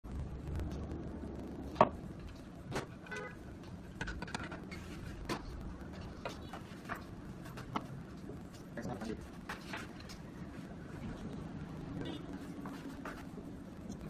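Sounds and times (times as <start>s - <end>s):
low background rumble: 0.0s - 9.4s.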